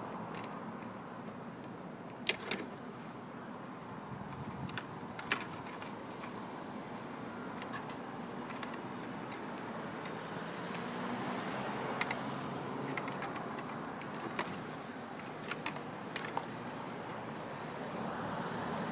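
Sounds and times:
road traffic rushing: 0.0s - 18.9s
elk antlers clacking: 4.3s - 6.4s, 7.6s - 10.9s, 12.8s - 17.2s.

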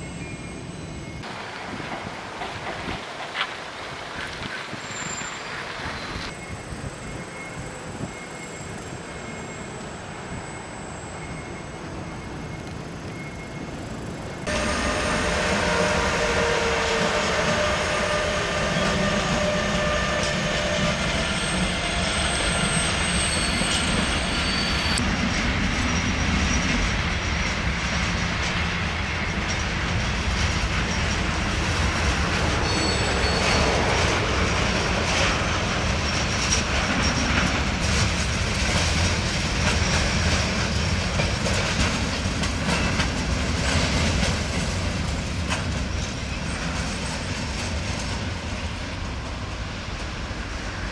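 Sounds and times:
train wheels rumbling on rails: 0.0s - 50.9s
clickety-clack over rail joints: 1.2s - 6.4s, 23.3s - 50.9s
wheel squeal: 4.8s - 25.0s, 32.3s - 37.8s.

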